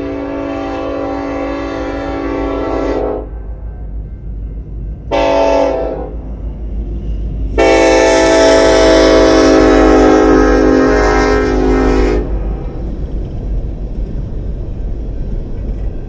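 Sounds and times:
locomotive air horn blasts: 0.0 - 3.4, 5.1 - 6.2, 7.6 - 12.6
low rumble of train: 0.0 - 16.0.

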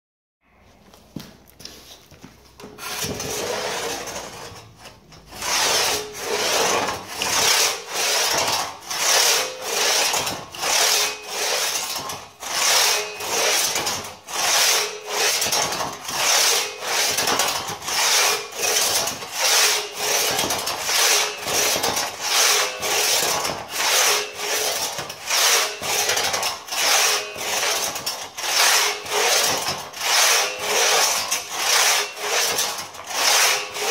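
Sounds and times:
crosscut saw cutting through log: 2.8 - 33.9.

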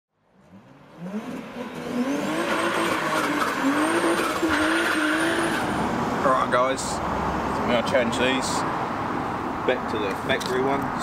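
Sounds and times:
car engine accelerating: 0.3 - 6.2.

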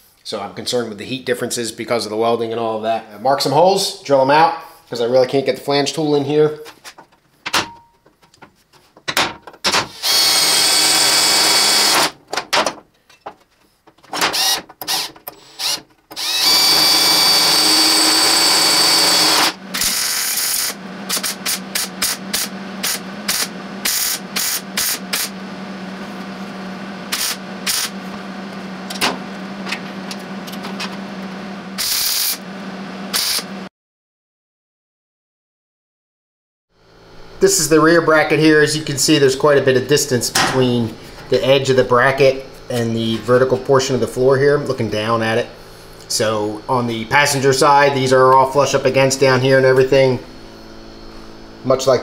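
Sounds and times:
cordless drill boring through steel: 9.9 - 12.2, 14.3 - 25.4, 31.8 - 32.4, 33.1 - 33.5
welder low hum: 9.9 - 12.2, 14.4 - 33.7, 36.8 - 52.0.

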